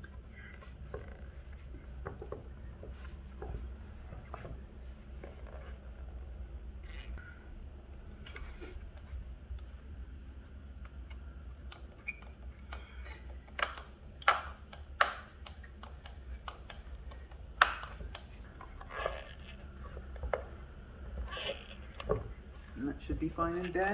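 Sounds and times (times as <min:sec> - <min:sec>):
low steady hum: 0:00.0 - 0:23.9
hands clicking and tapping: 0:13.5 - 0:18.3.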